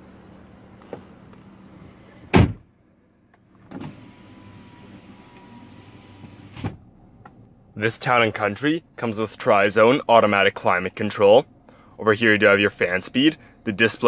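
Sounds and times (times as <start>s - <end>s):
loud thump: 2.3s - 2.6s
power window motor whining: 3.5s - 6.8s.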